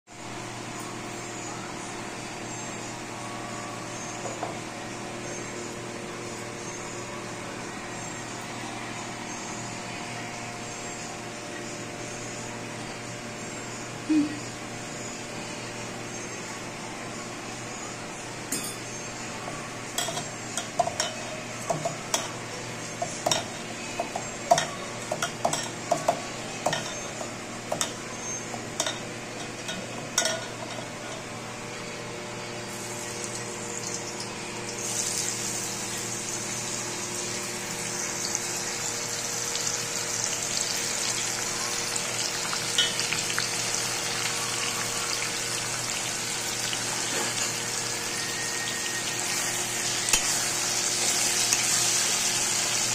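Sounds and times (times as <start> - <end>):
clinks in a steel bowl: 18.5 - 18.9, 24.5 - 28.0, 28.8 - 31.3, 42.8 - 43.2
slices sizzling in hot oil: 32.7 - 52.9.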